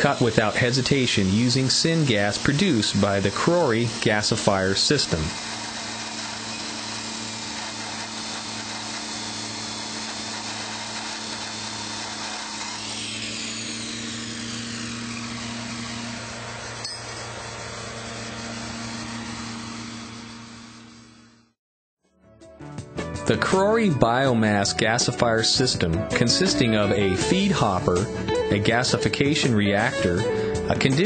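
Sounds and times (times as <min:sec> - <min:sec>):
chop saw grinding metal pipe: 0:00.0 - 0:21.4, 0:24.1 - 0:31.0
falling saw whine: 0:00.0 - 0:21.5.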